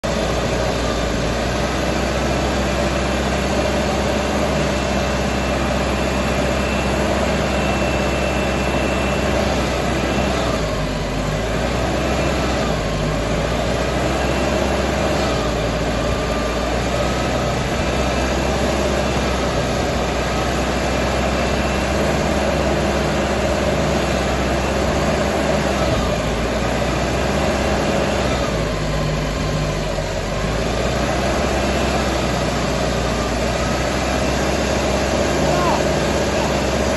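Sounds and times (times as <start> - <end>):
diesel engine running: 0.0 - 36.9.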